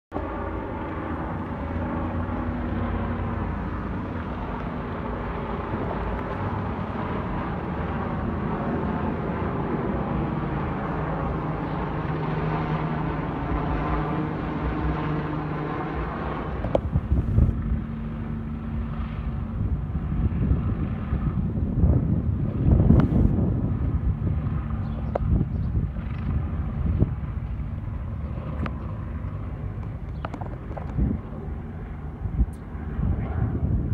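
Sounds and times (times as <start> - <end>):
helicopter hovering overhead: 0.1 - 33.9
wind bumps on microphone: 16.6 - 17.8, 19.5 - 27.3, 30.0 - 31.3, 32.2 - 33.9.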